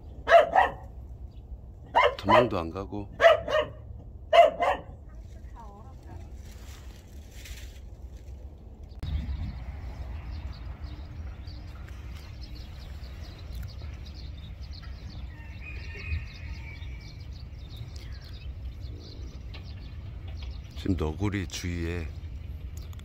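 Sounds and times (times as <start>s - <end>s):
wind rumbling on microphone: 0.0s - 23.0s
bird calls and chirps: 8.9s - 23.0s.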